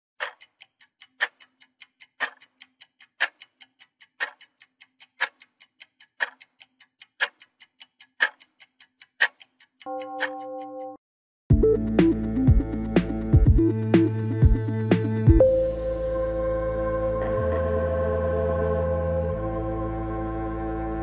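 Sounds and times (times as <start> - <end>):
clock ticking: 0.2 - 11.0.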